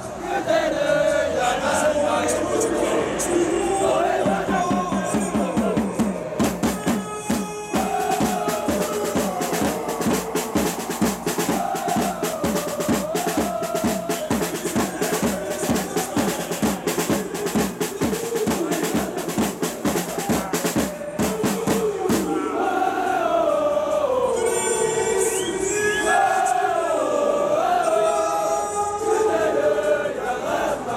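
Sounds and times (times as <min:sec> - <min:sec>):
crowd singing a chant: 0:00.0 - 0:30.9
bass and snare drums beating: 0:04.2 - 0:22.4.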